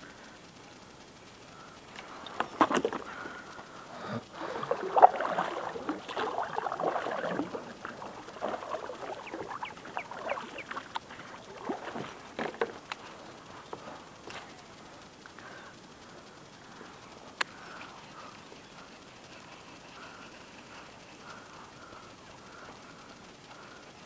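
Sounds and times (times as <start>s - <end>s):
water splashing around kayak: 2.4s - 3.4s, 4.3s - 13.0s.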